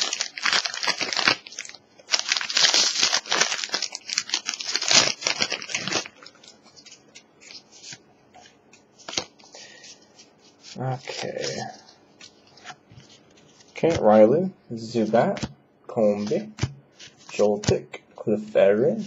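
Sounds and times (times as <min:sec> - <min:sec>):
foil pack crinkling while torn: 0:00.0 - 0:08.0, 0:09.0 - 0:12.6
cards rustling: 0:00.0 - 0:14.2, 0:14.9 - 0:17.9.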